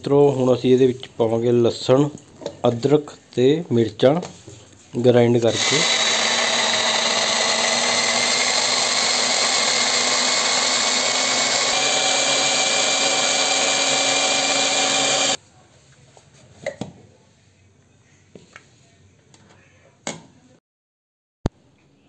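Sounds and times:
electric food chopper running: 5.5s - 15.4s.

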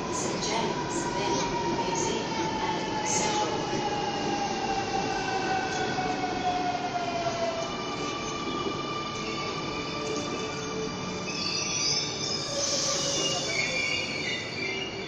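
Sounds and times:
electric train whine: 0.0s - 15.0s.

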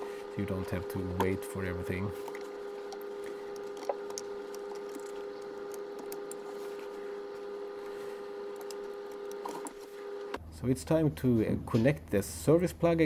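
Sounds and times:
steady tonal hum: 0.0s - 11.2s
connectors clicking and rustling: 2.2s - 6.9s.

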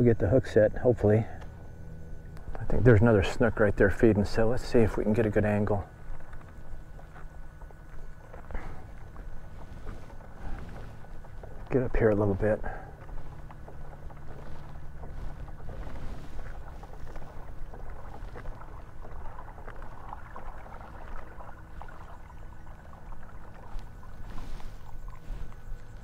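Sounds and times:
water running along hull: 0.0s - 26.0s.

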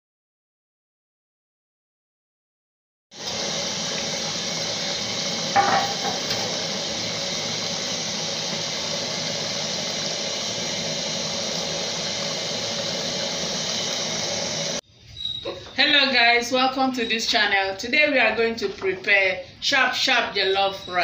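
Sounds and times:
pot boiling and bubbling: 3.1s - 14.8s
metallic clank: 5.6s - 6.5s.

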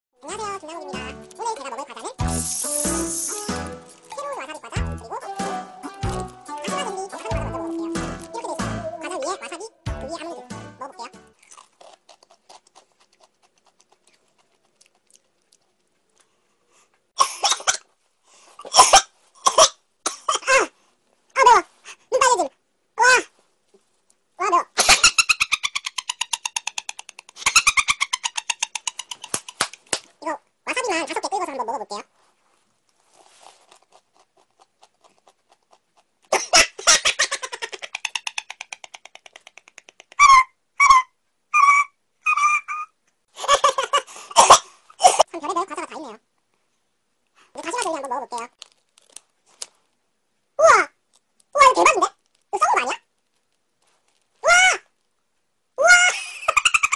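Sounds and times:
faint chewing: 11.3s - 17.1s, 32.2s - 36.5s, 48.4s - 50.0s.

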